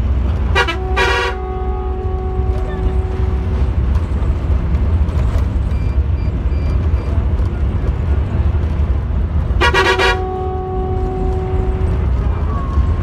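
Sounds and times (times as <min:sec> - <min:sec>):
bus engine and road rumble: 0:00.0 - 0:13.0
bus horn blast: 0:00.4 - 0:03.8, 0:09.5 - 0:12.3.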